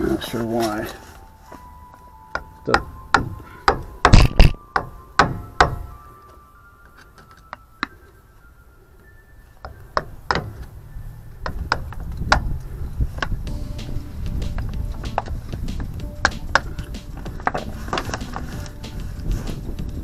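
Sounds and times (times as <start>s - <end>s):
hammer striking metal: 2.3s - 5.9s.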